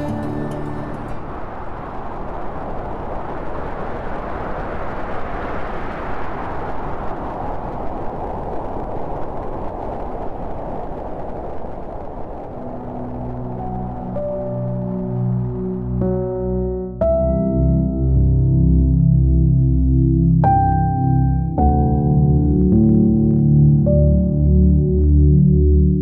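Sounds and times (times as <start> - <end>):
low musical tones: 0.0 - 2.0, 12.6 - 26.0
steady rushing noise: 0.0 - 17.0.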